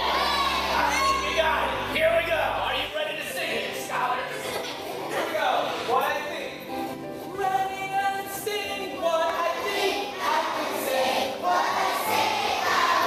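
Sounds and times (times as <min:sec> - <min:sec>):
children singing: 0:00.0 - 0:01.8, 0:09.3 - 0:13.0.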